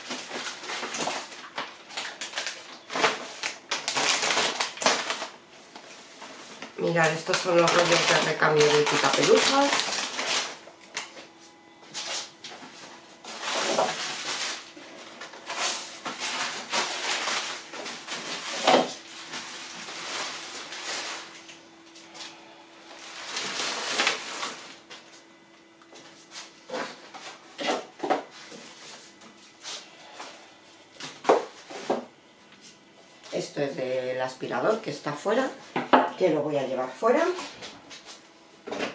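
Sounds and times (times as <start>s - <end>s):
shopping bags rustling: 0.0s - 21.5s, 22.3s - 25.2s.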